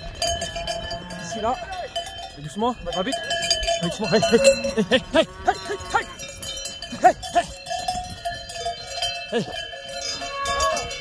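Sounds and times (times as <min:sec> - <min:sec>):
cowbells clanking: 0:00.0 - 0:11.0.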